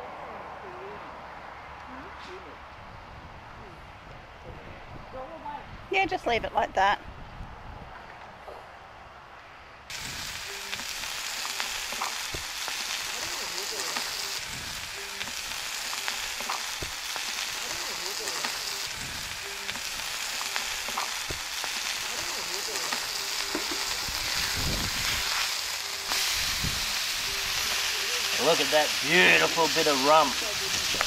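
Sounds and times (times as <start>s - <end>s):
meat sizzling on hot plate: 9.9s - 31.0s.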